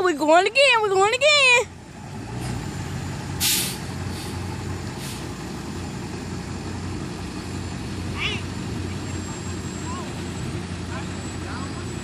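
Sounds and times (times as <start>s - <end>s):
truck engines running: 0.0s - 12.0s
air brake hiss: 3.4s - 4.4s, 5.0s - 5.3s.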